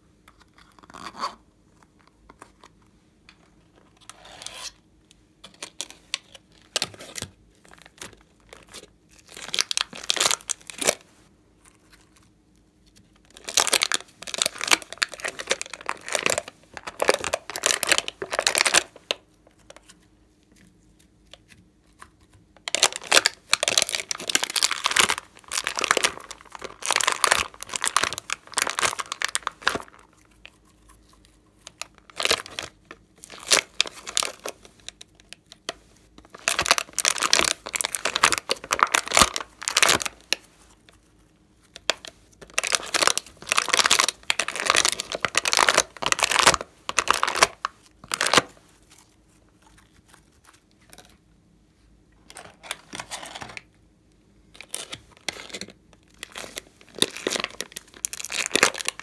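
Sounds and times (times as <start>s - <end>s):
plastic crinkling: 5.4s - 12.4s, 13.0s - 51.2s, 54.5s - 59.0s.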